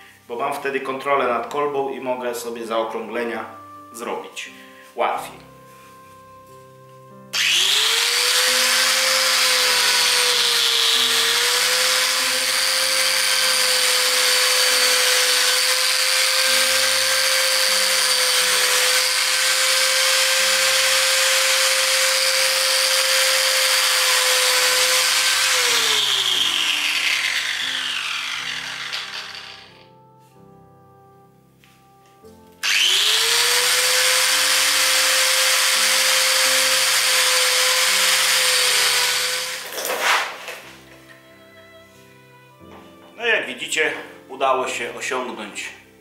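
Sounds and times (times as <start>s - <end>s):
angle grinder sanding: 7.4s - 29.8s, 32.6s - 40.5s.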